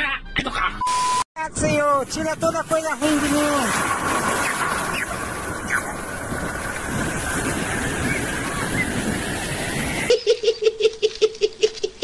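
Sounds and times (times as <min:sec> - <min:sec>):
wind and sea noise: 0:01.4 - 0:10.4
man giggling: 0:10.1 - 0:12.0.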